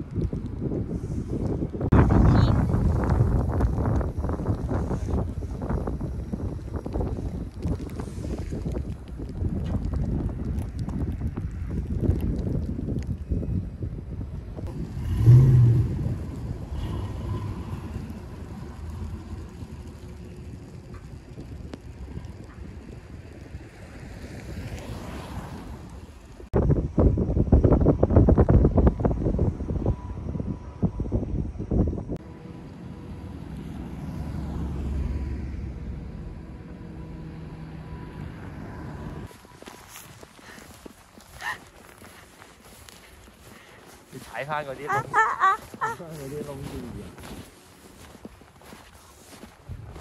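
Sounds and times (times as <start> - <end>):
car passing on snowy road: 14.6 - 26.5, 32.2 - 50.0
vehicle driving past: 14.7 - 21.7, 32.2 - 40.6.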